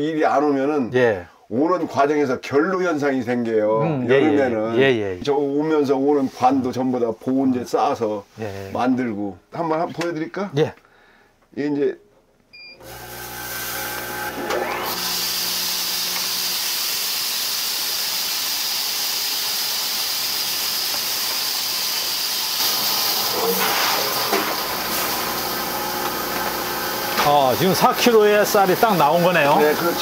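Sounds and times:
bagging machine running: 0:12.8 - 0:30.0.

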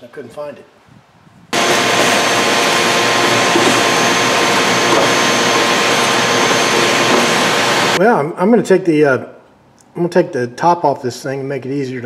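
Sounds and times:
shop vacuum sucking sawdust: 0:01.6 - 0:08.0.

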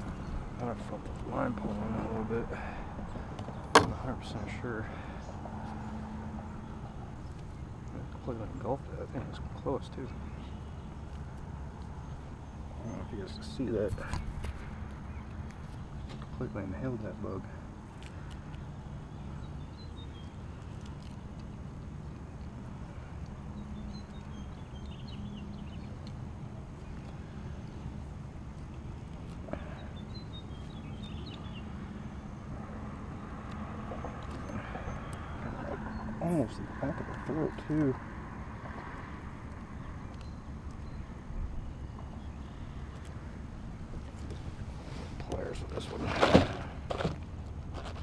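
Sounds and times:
low outdoor rumble: 0:00.0 - 0:48.0.

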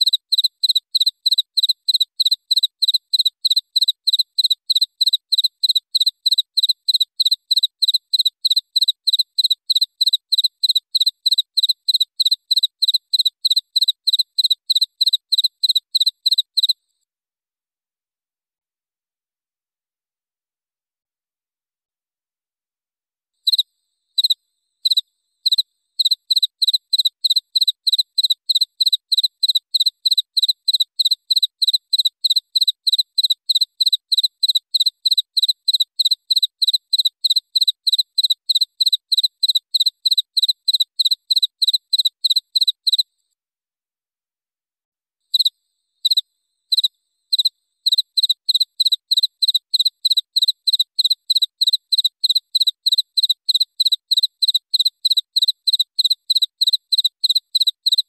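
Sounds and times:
cricket chirping: 0:00.0 - 0:16.8, 0:23.4 - 0:43.0, 0:45.3 - 0:58.0.

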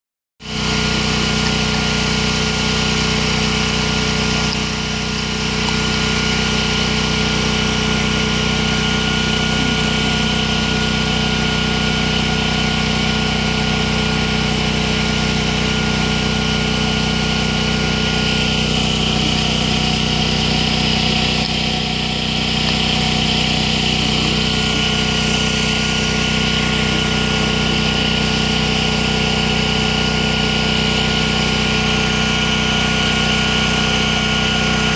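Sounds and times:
engine idling: 0:00.5 - 0:34.9.

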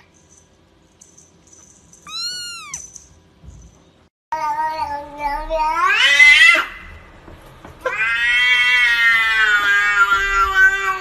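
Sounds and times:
cat yowling: 0:02.1 - 0:02.8, 0:07.9 - 0:11.0.

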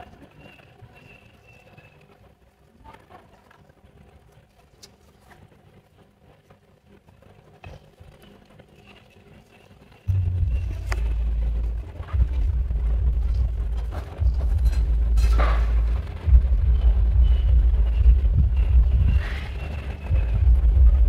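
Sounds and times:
loud low rumble: 0:10.1 - 0:21.0.

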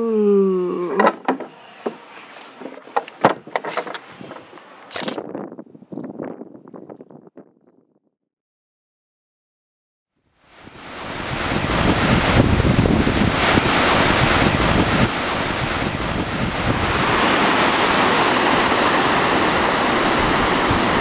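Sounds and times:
wind buffeting microphone: 0:03.2 - 0:07.8, 0:10.6 - 0:21.0
waterfall and river rushing: 0:10.5 - 0:21.0.

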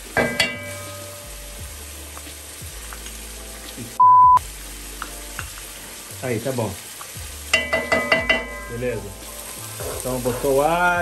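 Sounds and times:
onion and garlic sizzling: 0:00.0 - 0:11.0
loud steady beep tone: 0:04.0 - 0:04.4.

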